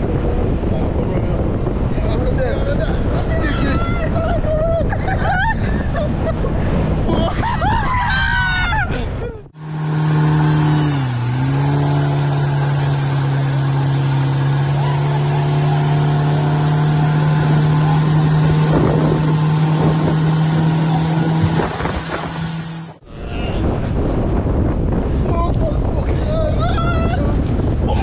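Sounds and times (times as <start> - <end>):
motorboat engine running: 9.6 - 23.0.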